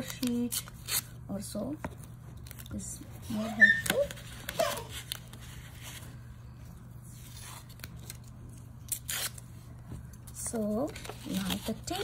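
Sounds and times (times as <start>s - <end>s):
tape tearing: 0.0s - 1.1s, 7.3s - 9.4s.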